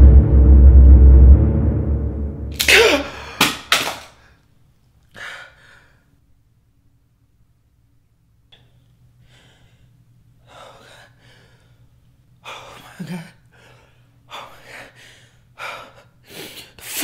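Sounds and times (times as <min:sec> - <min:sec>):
faint steady hum: 0:04.2 - 0:16.9
man gasping breaths: 0:09.2 - 0:17.0.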